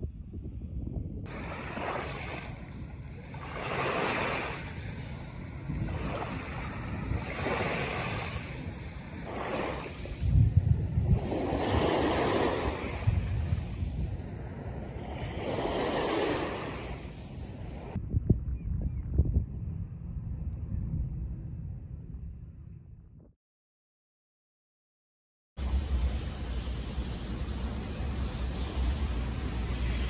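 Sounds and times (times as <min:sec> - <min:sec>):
wind buffeting microphone: 0:00.0 - 0:23.3
small waves washing onto shore: 0:01.3 - 0:18.0.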